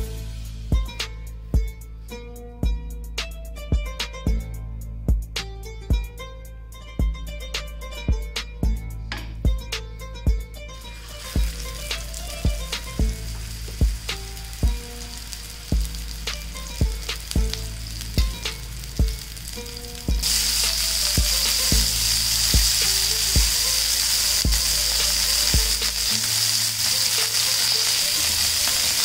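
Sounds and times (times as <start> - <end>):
background music with steady beat: 0.0 - 29.0
kebabs sizzling in oil: 10.6 - 29.0.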